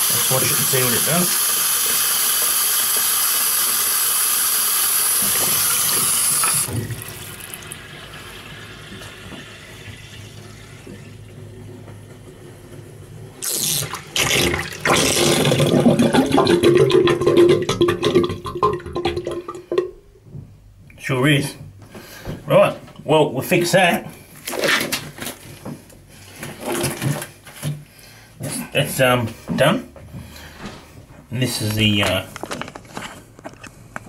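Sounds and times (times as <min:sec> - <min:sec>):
drain gurgling and slurping: 0:00.0 - 0:11.8, 0:13.4 - 0:20.0
water rushing down drain: 0:00.0 - 0:11.8, 0:13.4 - 0:20.0.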